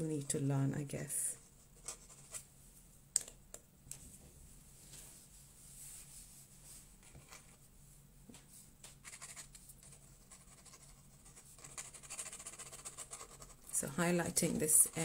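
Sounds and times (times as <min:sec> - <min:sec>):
pen scratching on paper: 0:09.1 - 0:13.6.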